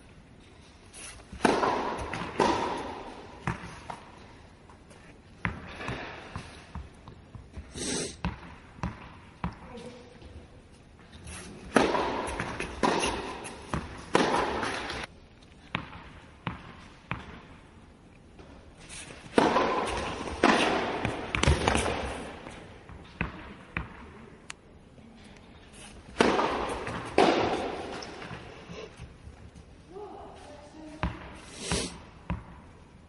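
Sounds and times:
tennis balls struck by rackets: 0:01.2 - 0:10.0, 0:11.5 - 0:15.1, 0:15.7 - 0:17.6, 0:18.4 - 0:24.6, 0:25.9 - 0:28.6
tennis balls bouncing on court: 0:01.3 - 0:10.4, 0:11.6 - 0:17.7, 0:19.2 - 0:24.5, 0:26.1 - 0:29.6, 0:30.9 - 0:31.4, 0:32.2 - 0:32.8.

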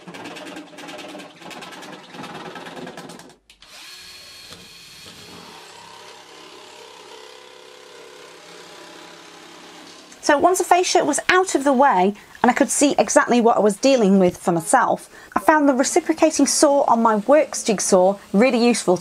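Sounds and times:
jigsaw cutting plastic: 0:00.0 - 0:10.1
power tool running steadily: 0:00.0 - 0:10.2.

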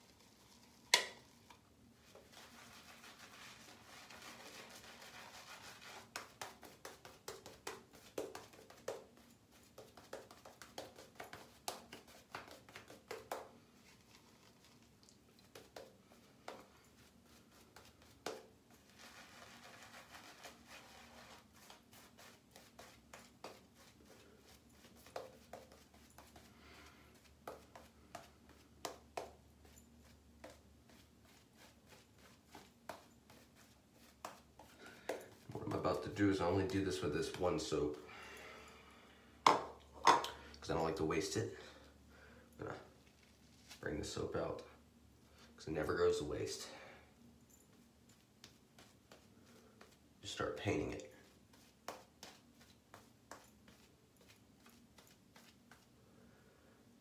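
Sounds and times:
shaving brush swishing lather: 0:00.0 - 0:26.5, 0:27.1 - 0:37.9, 0:48.1 - 0:55.9.

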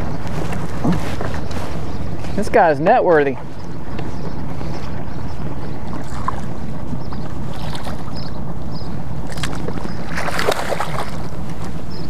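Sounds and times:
wind rumbling on microphone: 0:00.0 - 0:12.0
fish splashing in water: 0:09.3 - 0:11.4.

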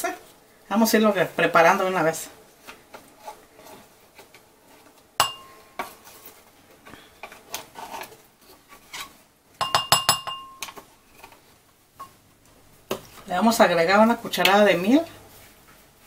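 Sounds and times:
taps on ringing bowl: 0:05.2 - 0:05.5, 0:09.6 - 0:10.6
glass bowl clinking: 0:05.2 - 0:05.7, 0:09.6 - 0:10.7
spatula scraping glass bowl: 0:07.6 - 0:09.2.

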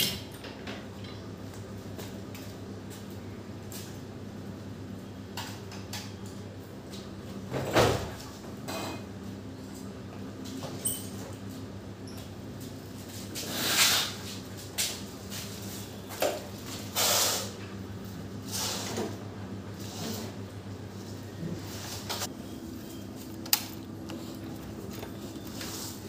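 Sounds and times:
steady low hum: 0:14.2 - 0:26.0
knocks and rattles of handling: 0:23.3 - 0:26.0.

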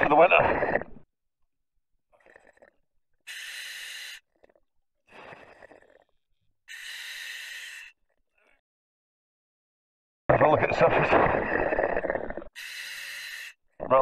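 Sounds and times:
diver breathing through regulator: 0:02.2 - 0:08.6, 0:11.1 - 0:13.7.

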